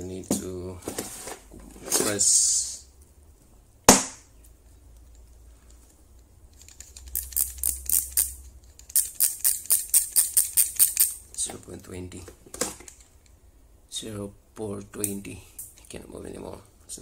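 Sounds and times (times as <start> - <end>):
sharp knock: 3.9 - 4.3
micrometer ratchet clicking: 6.5 - 11.2.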